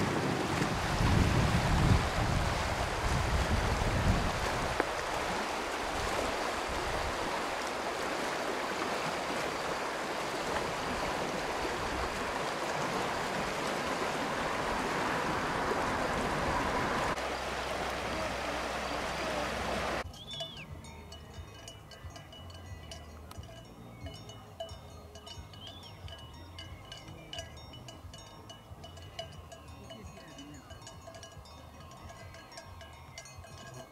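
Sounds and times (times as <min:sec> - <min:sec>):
wind rumble on microphone: 0:00.0 - 0:07.5
river rushing over stones: 0:00.0 - 0:20.0.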